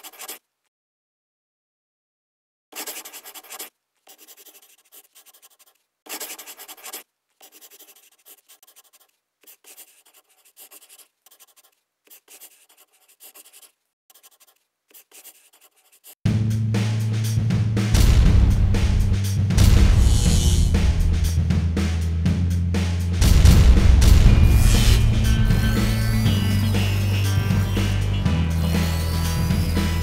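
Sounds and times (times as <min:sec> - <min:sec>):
pen scratching writing strokes: 0:00.0 - 0:00.4, 0:02.8 - 0:16.2
deep music hit: 0:16.3 - 0:30.0.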